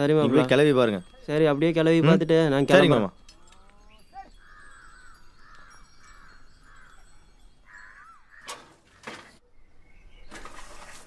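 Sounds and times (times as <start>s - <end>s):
faint birdsong: 2.5s - 11.0s
crows cawing: 3.3s - 9.4s.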